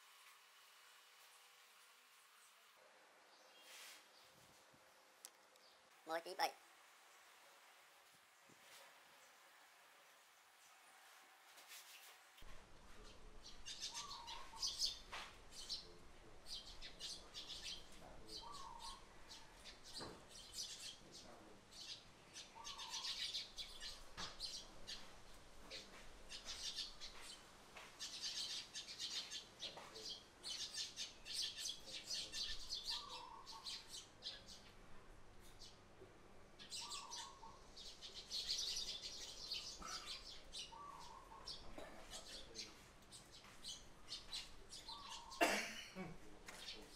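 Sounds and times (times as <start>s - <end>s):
sparrows chirping: 12.0s - 45.6s, 46.4s - 46.9s.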